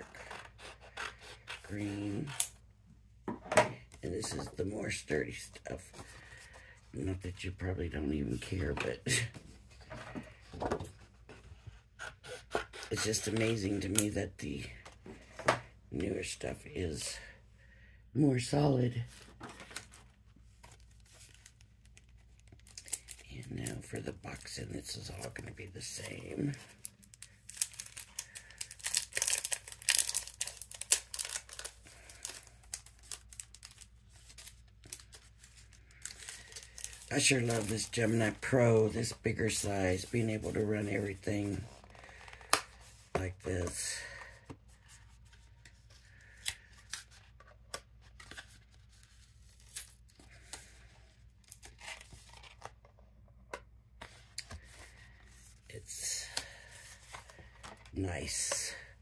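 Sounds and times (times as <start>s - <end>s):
paper handling: 25.1s - 50.8s.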